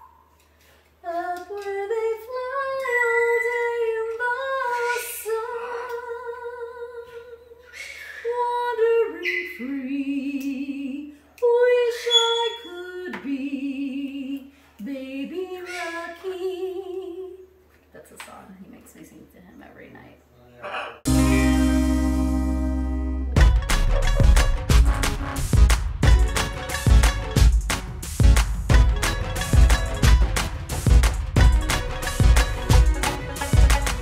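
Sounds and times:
woman singing unaccompanied: 0:01.0 - 0:07.6, 0:08.2 - 0:17.4.

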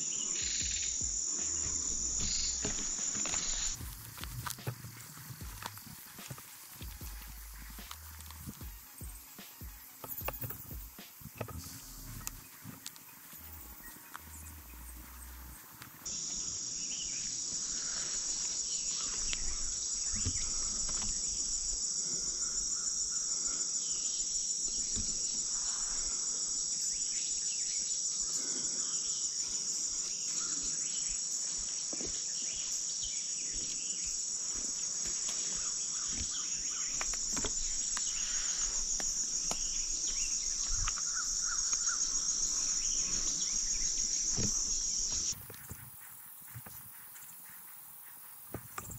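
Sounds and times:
insects chirping: 0:00.0 - 0:48.9
faint ticks and rustles: 0:00.6 - 0:16.4, 0:29.5 - 0:48.9.

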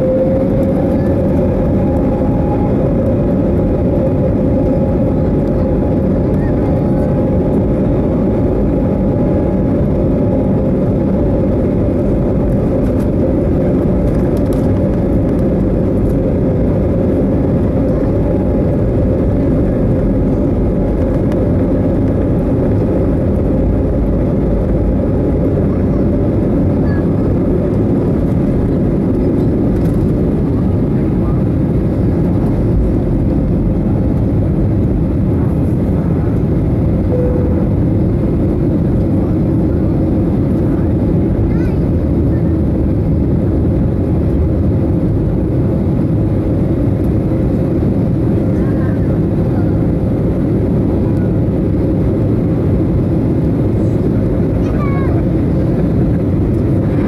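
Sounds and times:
jet engines at takeoff thrust: 0:00.0 - 0:57.0.

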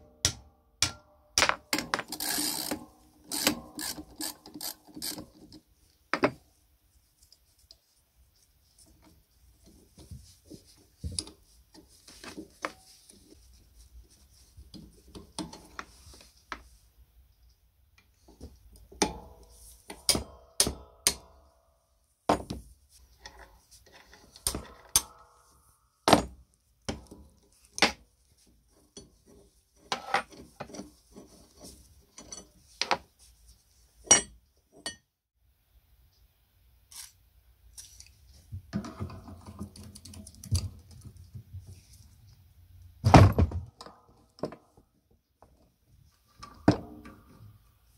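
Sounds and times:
metal tools and bolts clinking: 0:23.2 - 0:26.2, 0:32.1 - 0:32.7.

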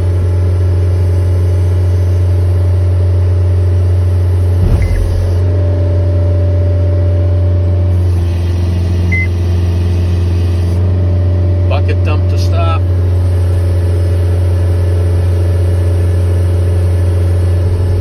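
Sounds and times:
short knock: 0:04.6 - 0:05.5
steady mid-pitched tone: 0:04.6 - 0:05.6.

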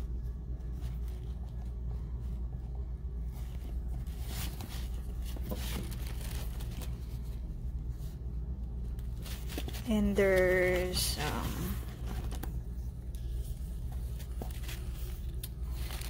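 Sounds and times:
steady low hum: 0:00.0 - 0:16.0
leather rustling and rubbing: 0:03.3 - 0:06.9.

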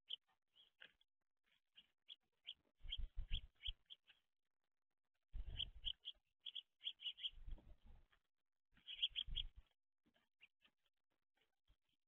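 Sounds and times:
sparrows chirping: 0:00.0 - 0:04.3, 0:05.4 - 0:07.8, 0:08.8 - 0:10.8.

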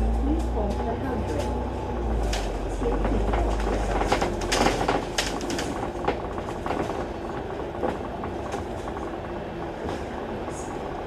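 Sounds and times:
bus engine and road rumble: 0:00.0 - 0:11.0
rattles and clicks from fittings: 0:02.2 - 0:09.2.

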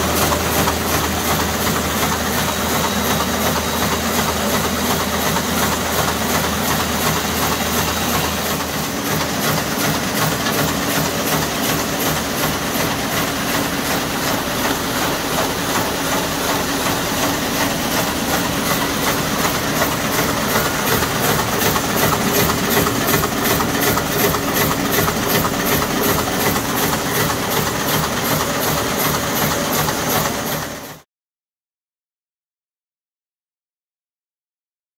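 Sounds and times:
machine mechanical clatter: 0:00.0 - 0:31.0.

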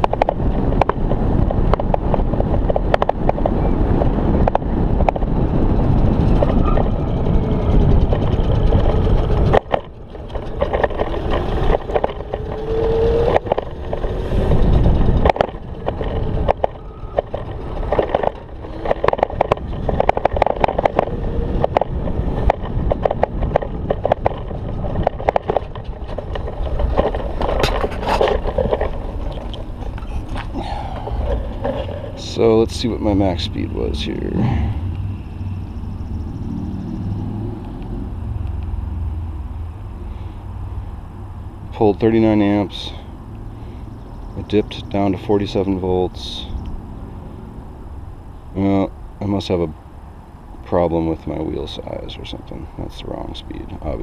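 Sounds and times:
rattles and clicks over bumps: 0:00.0 - 0:54.0
wind buffeting microphone: 0:00.0 - 0:54.0.

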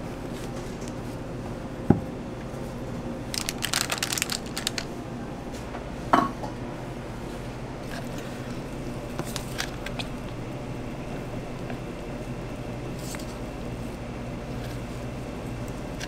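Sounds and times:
steady low hum: 0:00.0 - 0:16.0
rattling and crackling: 0:03.3 - 0:04.9.

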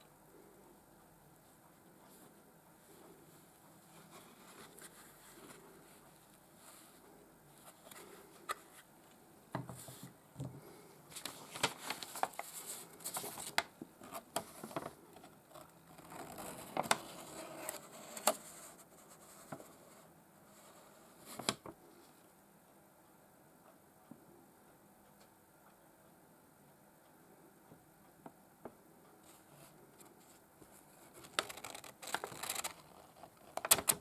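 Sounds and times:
paper rustling and scraping: 0:11.1 - 0:14.9, 0:31.0 - 0:33.9.

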